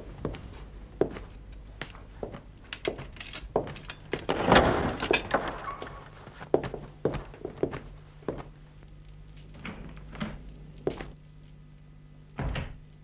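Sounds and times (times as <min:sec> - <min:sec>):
footsteps on hard floor: 0:00.0 - 0:04.4, 0:05.2 - 0:11.2
heavy door opening rush: 0:03.4 - 0:06.5.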